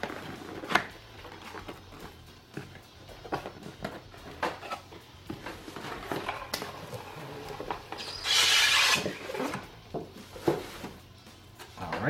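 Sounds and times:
box sliding out of sleeve: 5.6 - 9.7.

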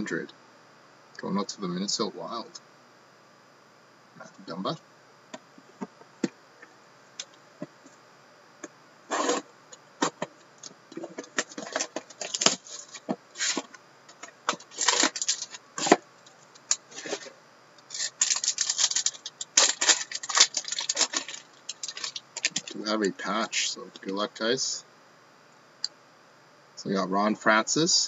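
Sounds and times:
plastic wrap crinkling: 10.9 - 17.3, 17.9 - 22.8.

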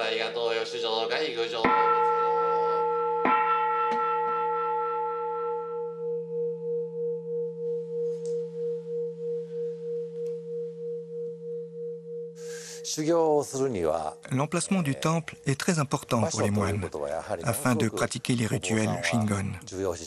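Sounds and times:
temple bowl ringing: 0.8 - 16.7.

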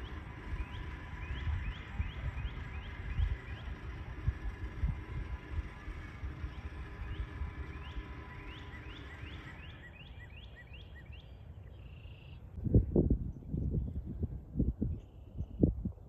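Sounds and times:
wind rumbling on microphone: 0.0 - 9.7, 12.5 - 16.0
bird chirping: 6.1 - 12.5.

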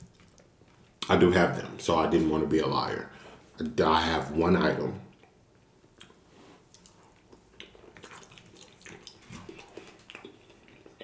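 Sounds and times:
close-miked wet chewing: 0.0 - 1.1, 5.1 - 11.0.

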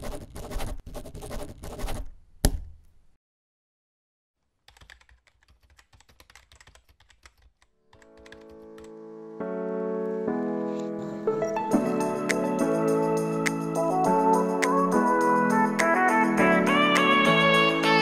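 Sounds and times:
pen scratching on paper: 0.0 - 2.1
rapid keyboard typing: 0.0 - 2.1, 4.6 - 9.0
music with held keyboard chords: 8.0 - 18.0.

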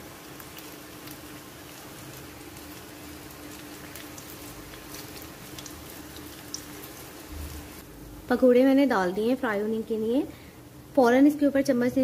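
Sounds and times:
oil sizzling and crackling: 0.0 - 8.4
faint steady hum: 0.0 - 12.0.

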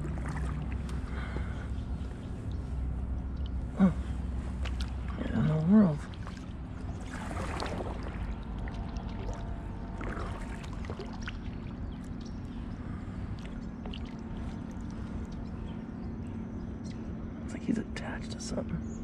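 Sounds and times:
paddle splashing in water: 0.0 - 1.1, 6.0 - 12.3
low steady rumble: 0.0 - 19.0.

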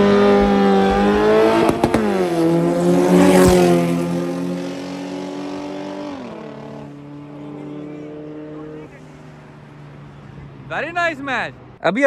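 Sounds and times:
race cars passing at full throttle: 0.0 - 12.0.

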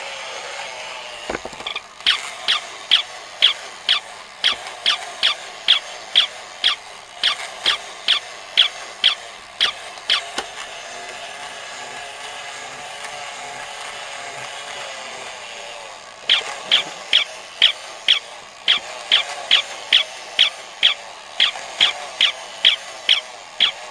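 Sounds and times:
toy motor and gears whirring: 0.0 - 23.9
toy puppy yapping: 1.3 - 10.6, 16.2 - 23.9.

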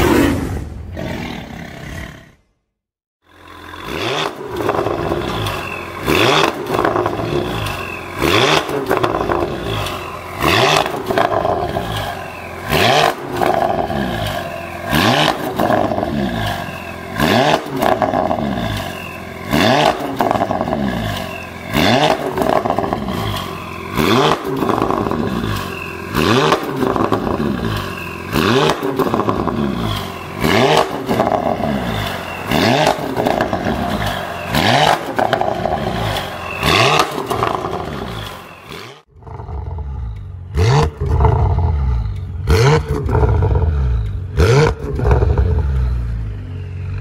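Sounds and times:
car engine idling and revving: 3.2 - 47.0.

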